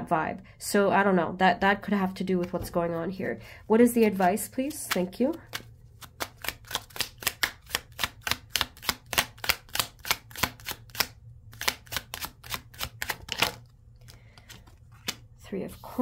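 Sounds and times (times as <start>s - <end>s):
cards being shuffled: 4.0s - 16.0s.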